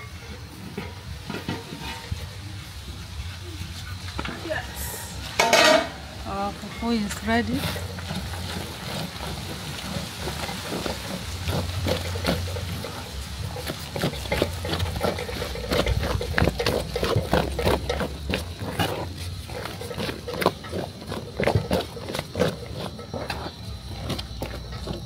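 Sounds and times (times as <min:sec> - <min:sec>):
sticky food squelching: 0:06.3 - 0:25.0.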